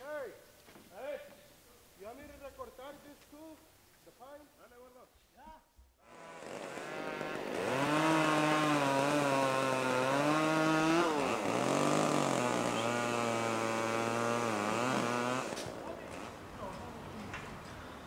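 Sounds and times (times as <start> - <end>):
chainsaw running at high revs: 6.0 - 16.4.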